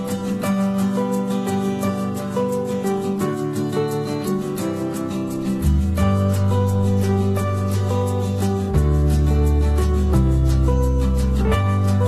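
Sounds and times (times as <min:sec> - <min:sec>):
plucked guitar music: 0:00.0 - 0:12.0.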